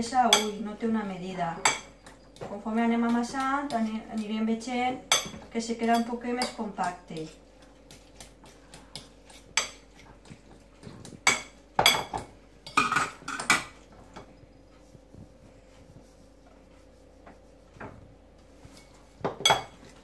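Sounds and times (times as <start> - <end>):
fork clinking against ceramic bowl: 5.1 - 7.4, 18.8 - 19.8.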